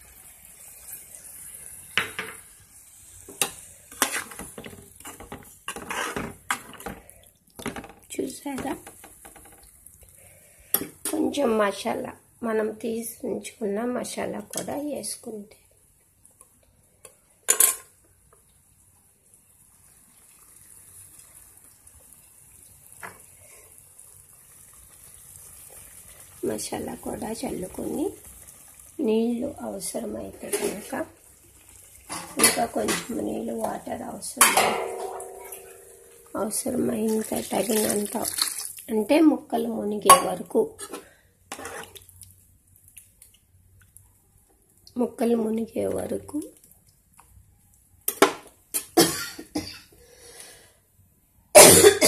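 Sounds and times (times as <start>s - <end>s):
curry hissing in a pan: 0.0s - 7.5s, 8.1s - 13.6s, 16.8s - 43.2s
fish sizzling in oil: 0.0s - 12.1s, 18.6s - 43.7s
utensil scraping pan: 3.3s - 7.0s, 40.1s - 42.0s.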